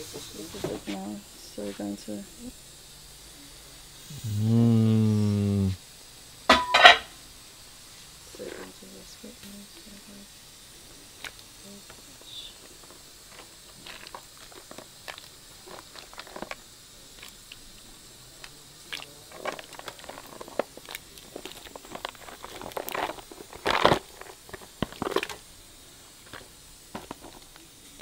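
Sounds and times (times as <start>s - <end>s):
crayfish shells scraping in plastic tub: 19.0s - 25.4s
rustling clatter: 19.2s - 25.4s.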